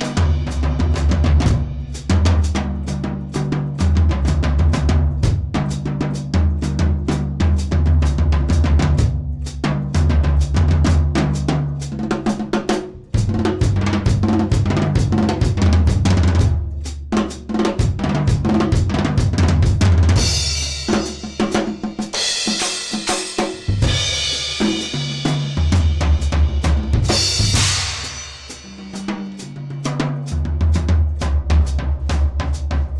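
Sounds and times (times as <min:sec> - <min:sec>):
drum kit played with sticks: 0:00.0 - 0:32.9
cymbal crashes: 0:27.0 - 0:29.6.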